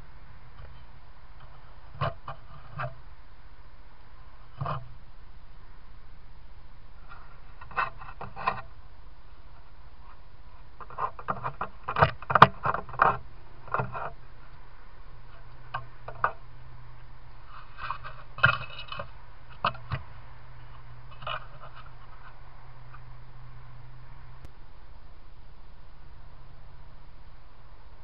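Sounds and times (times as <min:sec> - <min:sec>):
steady low hum: 0:00.0 - 0:28.0
foxes scratching and scraping: 0:00.6 - 0:03.0, 0:04.4 - 0:05.1, 0:07.0 - 0:23.9.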